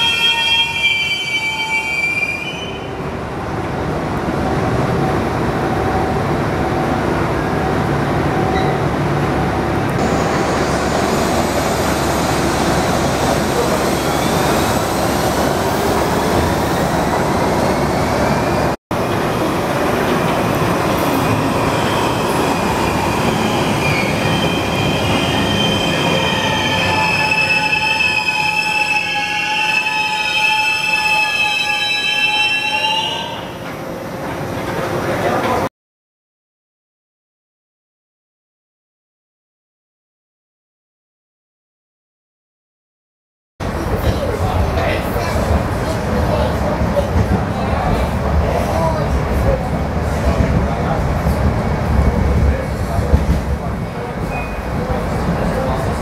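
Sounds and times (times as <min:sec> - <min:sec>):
train wheels squealing: 0:13.6 - 0:15.2, 0:21.7 - 0:33.4.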